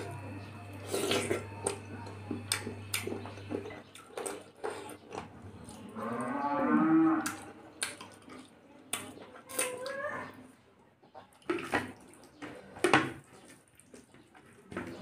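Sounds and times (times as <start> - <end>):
wet chewing and lip-smacking: 0.8 - 5.9, 7.2 - 10.0
low drawn-out moan: 5.9 - 7.3.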